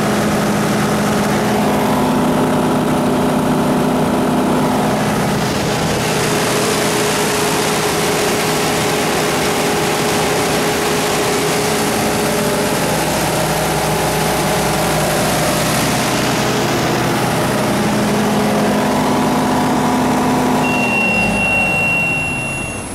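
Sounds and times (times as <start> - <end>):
diesel generator running: 0.0 - 22.9
high steady beep: 20.6 - 22.9.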